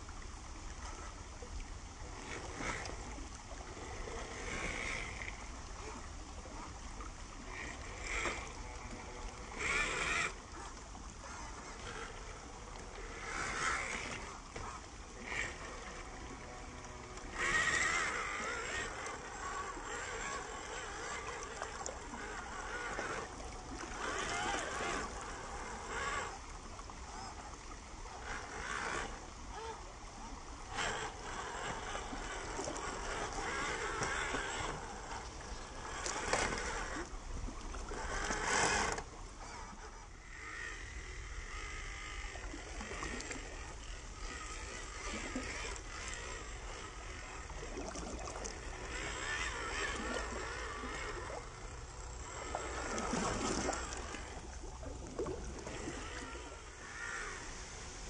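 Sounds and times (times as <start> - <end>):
electric motor whining: 2.0 - 58.0
tyres splashing through water: 7.5 - 26.4.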